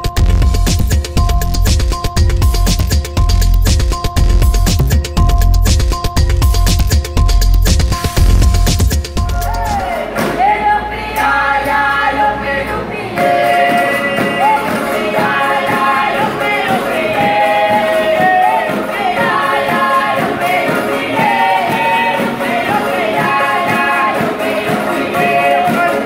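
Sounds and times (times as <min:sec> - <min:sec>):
group singing: 0:09.2 - 0:26.0
strummed ukuleles and guitar: 0:12.9 - 0:26.0.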